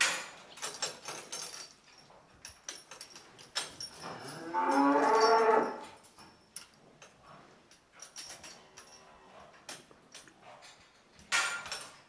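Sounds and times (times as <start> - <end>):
knocks and rustles: 0.0 - 12.0
cow mooing: 4.2 - 5.8.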